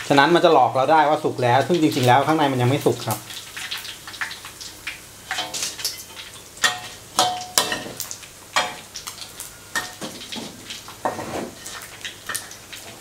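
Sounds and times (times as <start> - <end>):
oil sizzling: 0.0 - 13.0
metal spatula scraping wok: 9.7 - 13.0.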